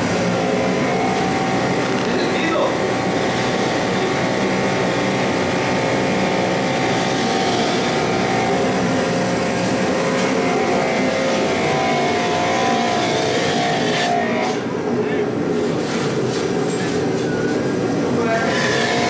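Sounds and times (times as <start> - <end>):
pressure washer motor whine: 0.0 - 15.5, 17.0 - 19.0.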